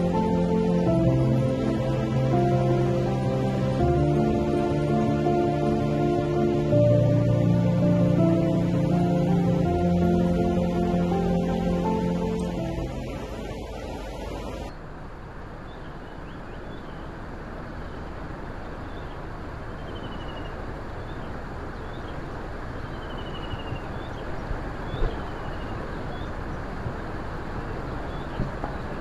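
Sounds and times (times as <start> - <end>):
background music: 0.0 - 13.8
low outdoor rumble: 0.0 - 15.8
small birds chirping and trilling: 17.9 - 26.7, 27.7 - 29.0.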